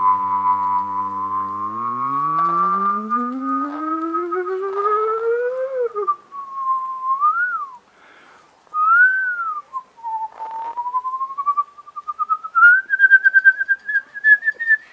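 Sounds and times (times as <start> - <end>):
person whistling: 0.0 - 7.8, 8.7 - 14.9.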